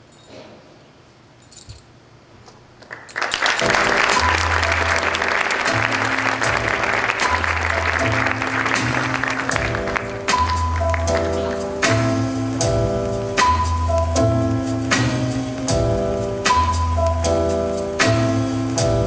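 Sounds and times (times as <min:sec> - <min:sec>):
audience applause: 0:02.8 - 0:12.1
music with deep bass notes: 0:03.7 - 0:19.0.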